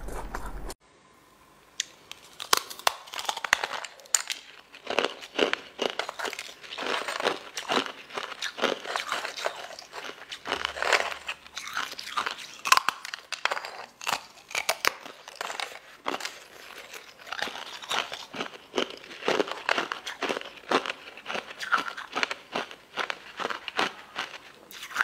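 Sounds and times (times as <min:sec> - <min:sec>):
crunchy chewing: 0:01.8 - 0:25.0.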